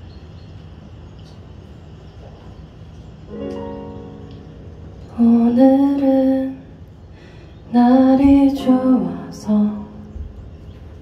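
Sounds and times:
low steady hum: 0:00.0 - 0:11.0
soft piano chord: 0:03.3 - 0:06.6, 0:07.8 - 0:11.0
woman singing: 0:05.1 - 0:06.8, 0:07.7 - 0:10.1.

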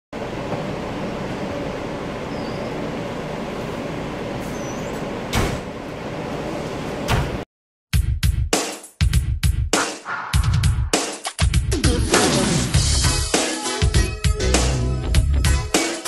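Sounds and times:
rumble of buses: 0:00.2 - 0:07.4.

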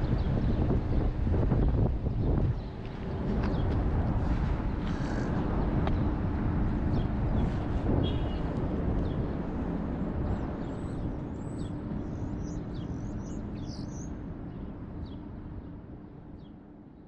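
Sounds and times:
constant hum: 0:00.0 - 0:17.0
low city rumble: 0:00.0 - 0:17.0
small birds chirping: 0:10.3 - 0:15.2.

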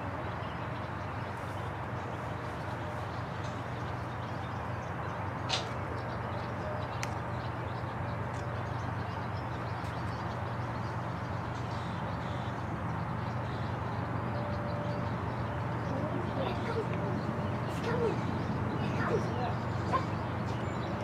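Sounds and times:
sharp click: 0:05.5 - 0:05.8.

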